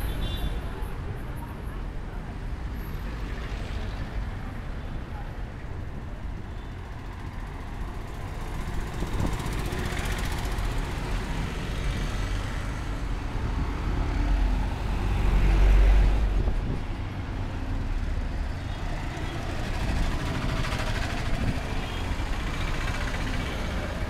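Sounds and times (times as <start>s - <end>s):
cars driving past: 8.4s - 24.0s.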